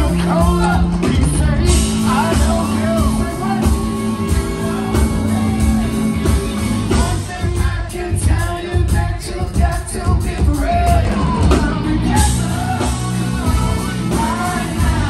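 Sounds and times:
electric guitar: 0:00.0 - 0:09.4
bass guitar: 0:00.0 - 0:15.0
drums: 0:00.0 - 0:15.0
man singing: 0:00.0 - 0:15.0.

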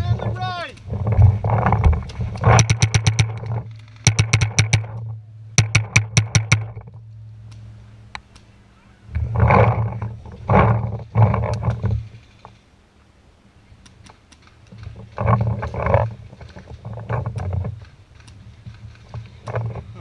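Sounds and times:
paintball marker firing: 0:02.5 - 0:05.0, 0:05.6 - 0:06.8.

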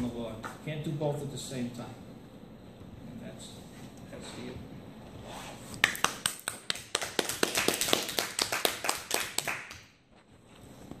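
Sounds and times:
people clapping: 0:05.8 - 0:10.0.

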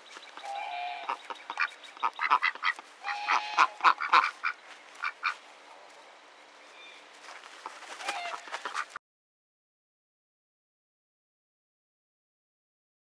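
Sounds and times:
ducks quacking: 0:00.4 - 0:05.4, 0:07.6 - 0:09.0.

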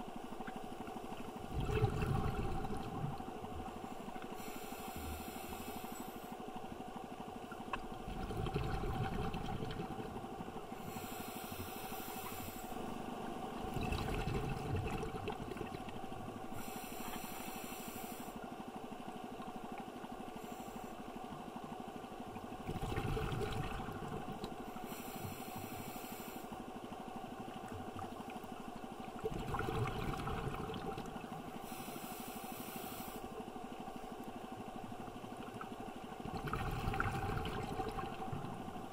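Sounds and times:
faint steady hum: 0:00.0 - 0:38.9
exhaled bubbles rumbling: 0:01.4 - 0:03.8, 0:07.6 - 0:10.7, 0:13.4 - 0:16.6, 0:22.4 - 0:24.6, 0:27.5 - 0:31.6, 0:35.2 - 0:38.9
regulator hiss on inhale: 0:03.8 - 0:06.6, 0:10.7 - 0:13.2, 0:16.4 - 0:18.6, 0:20.2 - 0:21.3, 0:24.6 - 0:26.8, 0:31.5 - 0:33.5.

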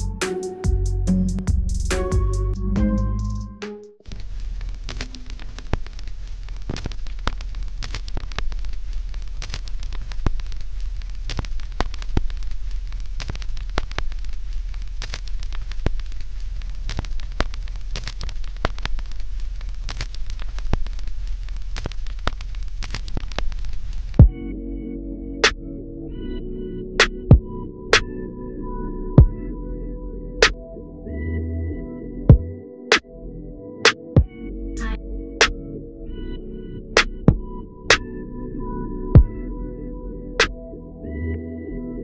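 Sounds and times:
crackling hiss with sharp pops: 0:04.0 - 0:24.2
low hum: 0:24.2 - 0:42.0.

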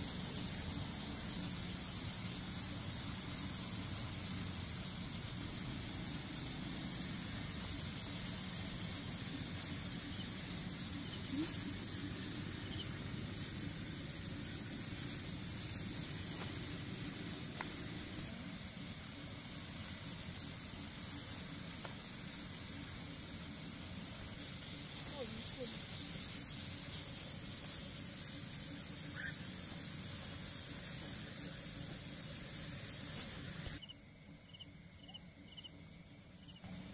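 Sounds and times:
constant hiss: 0:00.0 - 0:36.9
crickets trilling: 0:00.0 - 0:36.9.

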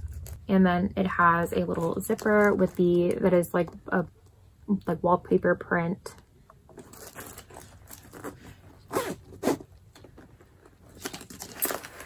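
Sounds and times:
bag rustling: 0:06.7 - 0:12.0
zipper being unzipped: 0:06.9 - 0:09.7.

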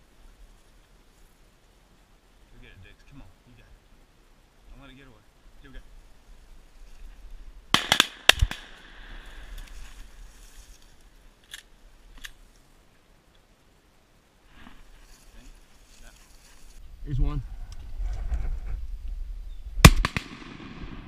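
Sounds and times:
shotgun shots: 0:07.7 - 0:09.2, 0:19.8 - 0:21.0.

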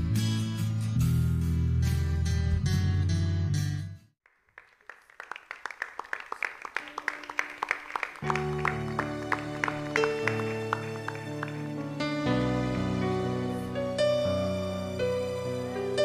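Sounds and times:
sustained bass notes and chords: 0:00.0 - 0:04.0.

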